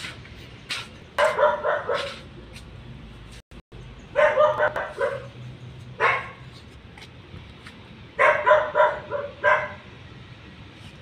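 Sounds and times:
dog barking: 1.2 - 2.2, 4.1 - 5.4, 6.0 - 6.4, 8.2 - 9.8.

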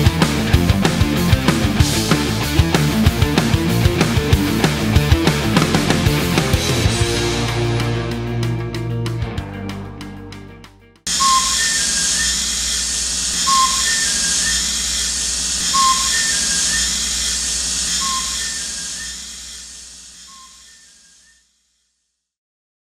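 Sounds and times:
hissing rumble: 11.1 - 21.2
short beeping chirp: 11.1 - 21.3.

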